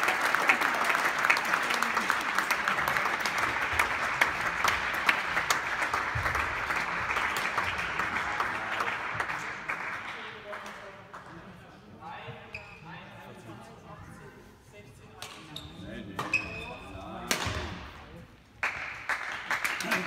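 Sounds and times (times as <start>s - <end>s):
crowd applauding: 0.0s - 11.3s, 18.6s - 20.0s.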